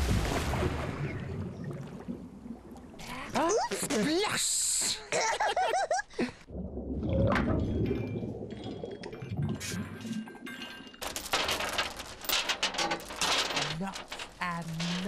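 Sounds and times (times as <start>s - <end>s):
anchor chain rattling: 10.6s - 15.0s.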